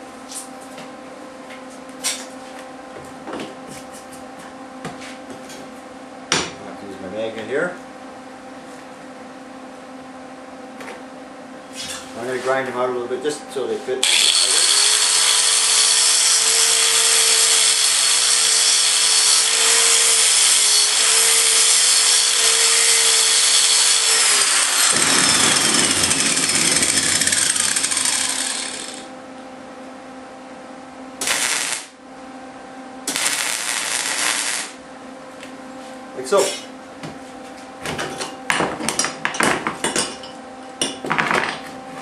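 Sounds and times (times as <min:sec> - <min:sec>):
angle grinder grinding steel: 0:14.0 - 0:29.1, 0:31.2 - 0:31.9, 0:33.1 - 0:34.8
crackling arc welding: 0:14.0 - 0:29.1, 0:31.2 - 0:32.0, 0:33.1 - 0:34.8.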